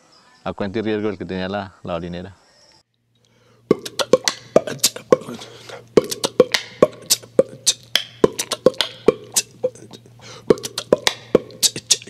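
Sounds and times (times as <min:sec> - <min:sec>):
percussive drum music: 0:03.7 - 0:05.4, 0:06.0 - 0:09.5, 0:10.5 - 0:12.0.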